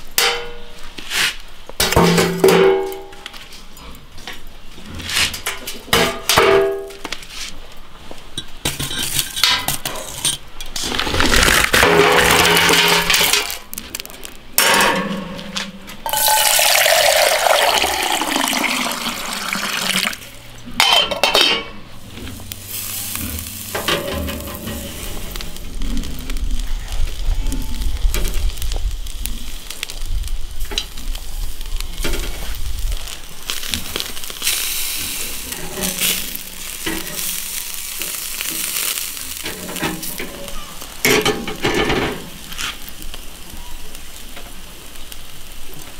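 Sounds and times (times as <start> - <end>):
water pouring: 16.1 - 20.4.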